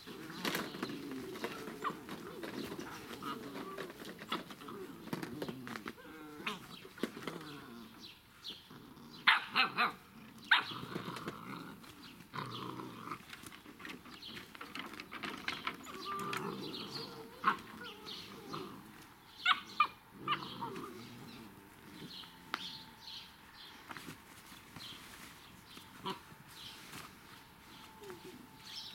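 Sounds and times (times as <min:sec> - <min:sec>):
puppies barking and yapping: 0:00.0 - 0:07.2, 0:07.9 - 0:12.5, 0:13.1 - 0:23.3.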